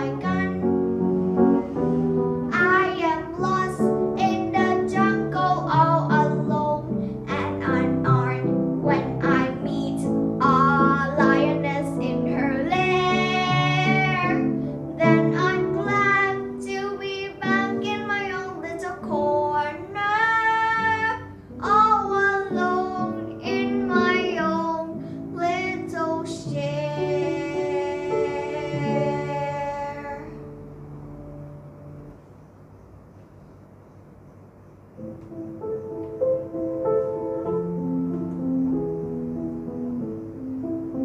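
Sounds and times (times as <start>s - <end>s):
girl singing: 0.0s - 1.0s, 2.5s - 30.6s
piano accompaniment: 0.0s - 41.0s.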